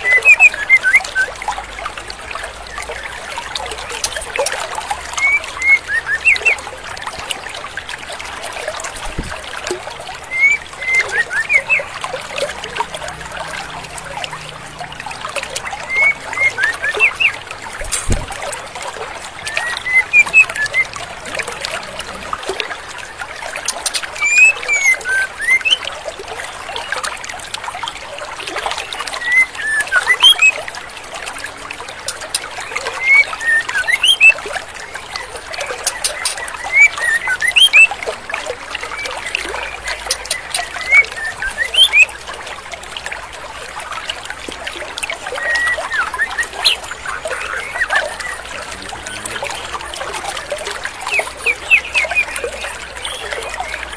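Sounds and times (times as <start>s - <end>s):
stream flowing: 0.0s - 53.9s
bird giving high rising chirps: 19.5s - 20.9s, 24.2s - 25.8s.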